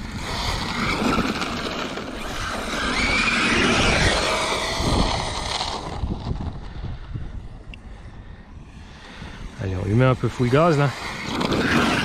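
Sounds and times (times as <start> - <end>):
electric motor whining: 0.0 - 6.9, 9.4 - 12.0.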